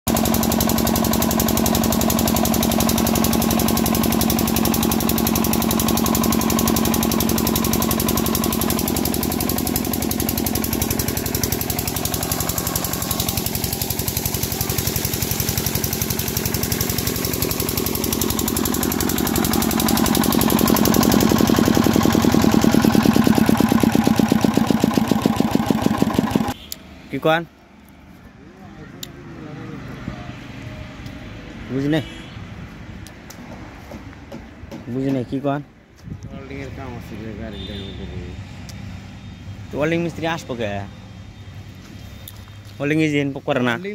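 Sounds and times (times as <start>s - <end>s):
diesel engine knocking: 0.1s - 26.6s.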